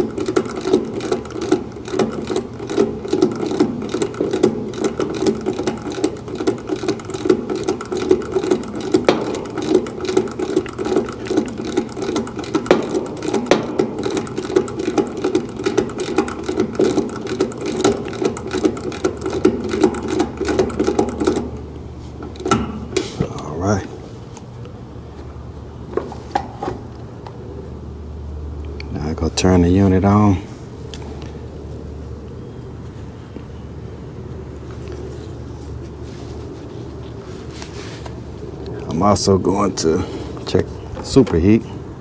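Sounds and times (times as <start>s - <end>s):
ratchet wrench clicking: 0.0s - 21.5s.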